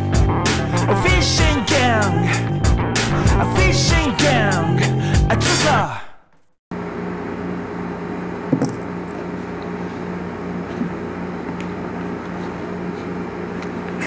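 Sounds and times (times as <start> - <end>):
ventilation hum: 6.7 - 14.0.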